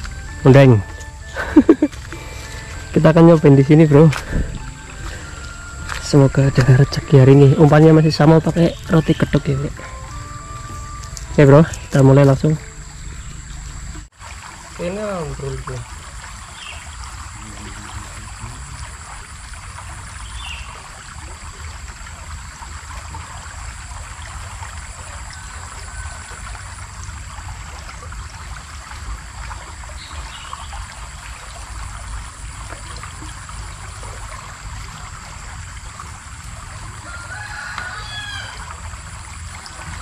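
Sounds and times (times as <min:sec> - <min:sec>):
high-pitched whine: 0:00.0 - 0:14.1
river water trickling: 0:00.0 - 0:40.0.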